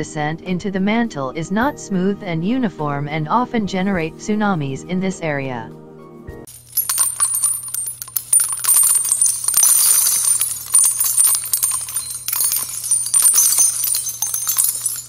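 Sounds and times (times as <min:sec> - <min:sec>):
high rapid jingling: 0:06.5 - 0:15.0.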